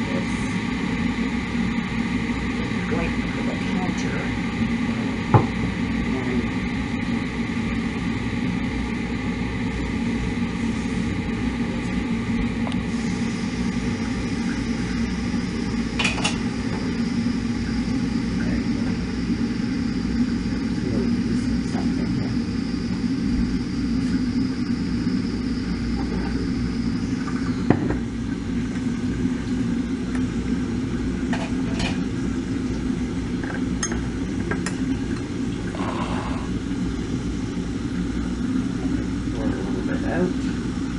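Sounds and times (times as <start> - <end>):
faint high whine: 0.0 - 40.9
kitchen appliance humming: 0.0 - 40.9
dishes clinking: 33.4 - 34.8.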